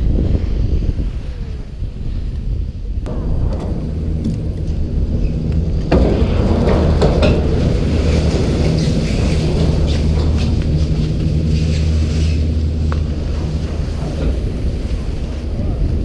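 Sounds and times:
chairlift mechanical hum: 0.4 - 16.0
clicks and knocks: 3.1 - 11.3.

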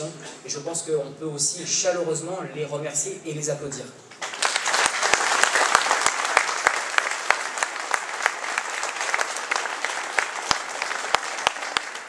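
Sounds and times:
close distinct hand claps: 4.2 - 12.0
crowd applauding: 4.2 - 12.0.

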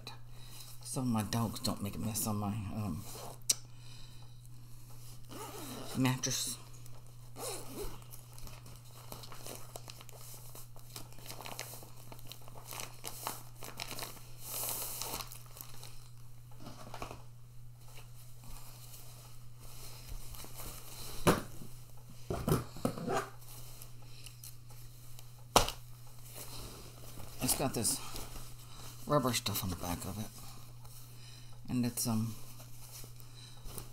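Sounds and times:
plastic packaging crinkling and tearing: 7.6 - 16.2
fabric rustling: 26.1 - 31.2.

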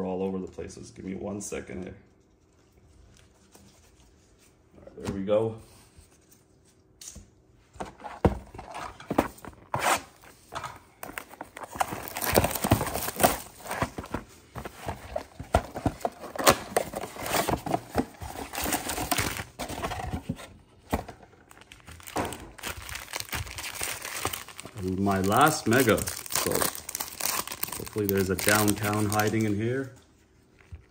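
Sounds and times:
foil packs rustling and crinkling: 9.0 - 30.0.

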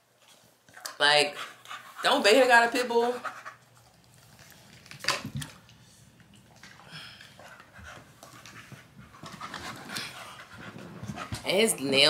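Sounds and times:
dog panting: 0.7 - 4.6, 6.4 - 12.0.

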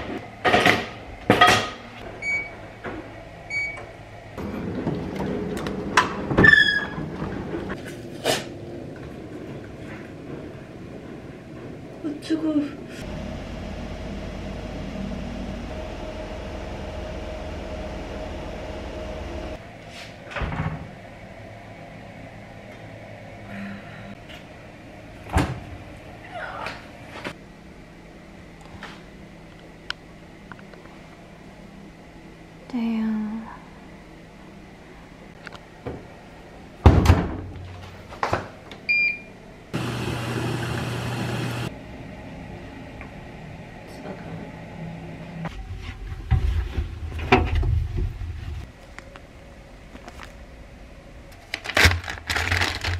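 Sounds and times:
low room hum: 0.0 - 39.8, 41.7 - 52.9
washing machine drum humming: 13.0 - 19.6, 38.9 - 43.7.

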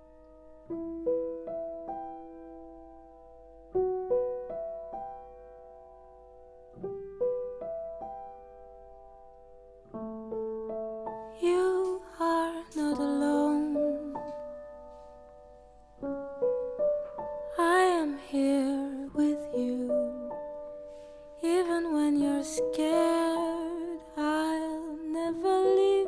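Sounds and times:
slow piano ballad: 0.0 - 26.0
woman singing: 11.4 - 14.3, 17.5 - 20.4, 21.4 - 26.0.

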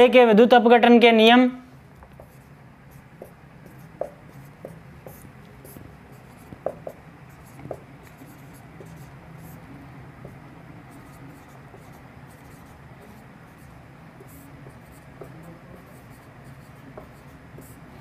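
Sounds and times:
low steady hum: 0.0 - 18.0
marker writing on whiteboard: 2.0 - 18.0
marker tip tapping board: 3.2 - 7.0, 7.6 - 9.0, 16.9 - 17.7.

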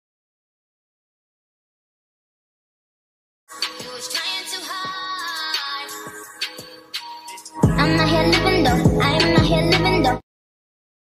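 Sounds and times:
pop song with vocals: 3.5 - 10.2
deep kick drums: 7.6 - 8.0, 8.7 - 9.7.

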